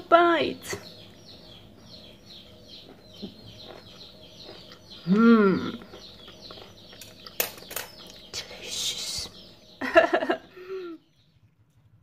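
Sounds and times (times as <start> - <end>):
small birds chirping: 0.0 - 12.0
person humming mmm: 5.0 - 5.9.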